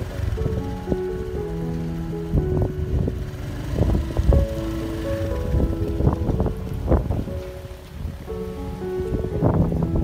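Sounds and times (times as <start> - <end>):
background music held notes: 0.0 - 10.0
low rumble: 0.0 - 10.0.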